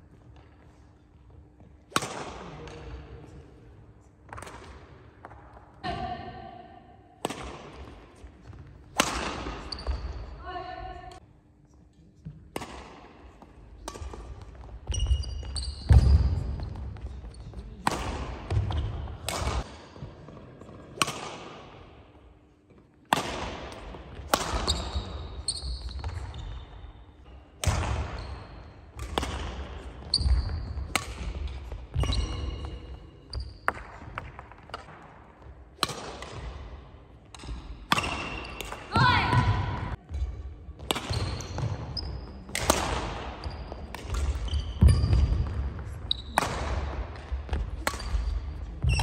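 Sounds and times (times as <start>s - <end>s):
racket striking shuttlecock: 1.9s - 2.8s, 7.2s - 8.0s, 8.9s - 10.0s, 12.5s - 16.1s, 17.8s - 19.7s, 21.0s - 21.6s, 23.1s - 25.2s, 27.6s - 28.2s, 28.9s - 32.4s, 33.6s - 38.9s, 40.8s - 41.7s, 42.5s - 45.6s, 46.4s - 49.0s
sneaker squeaks: 9.5s - 10.5s, 13.9s - 17.8s, 24.4s - 29.2s, 29.8s - 33.8s, 40.8s - 42.7s, 43.4s - 46.7s, 47.5s - 49.0s.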